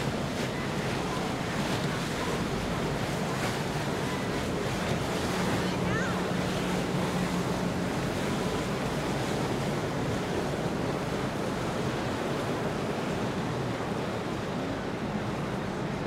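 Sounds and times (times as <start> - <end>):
boat engine hum: 0.0 - 16.0
water rushing in boat wake: 0.0 - 16.0.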